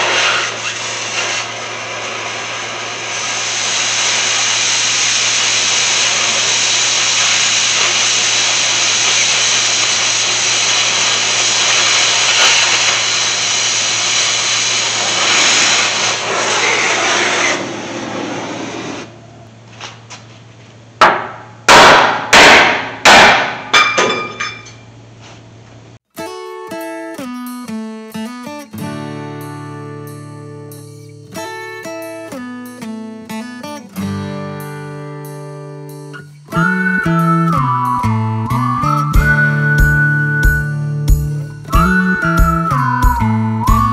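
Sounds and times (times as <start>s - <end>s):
plasma cutter hissing: 0.0s - 19.1s.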